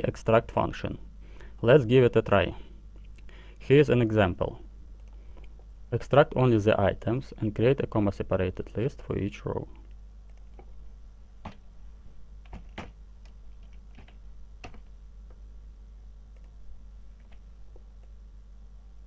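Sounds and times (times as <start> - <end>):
keyboard and mouse clicks: 9.8 - 10.7, 17.2 - 18.2.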